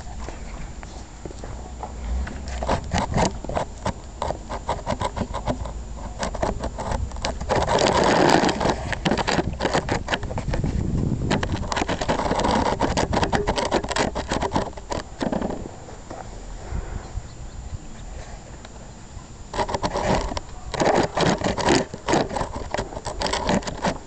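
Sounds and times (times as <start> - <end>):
rubbing and rustling on microphone: 0.0 - 24.0
rapid irregular clicks: 2.2 - 15.6, 19.4 - 24.0.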